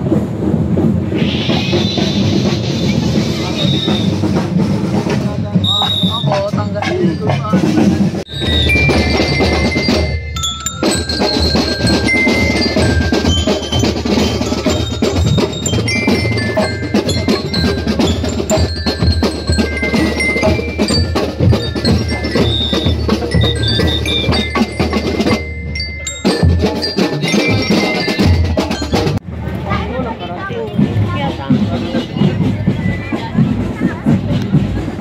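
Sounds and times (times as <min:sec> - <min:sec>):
marching drums: 0:00.0 - 0:35.0
bell lyres playing tune: 0:05.5 - 0:29.2.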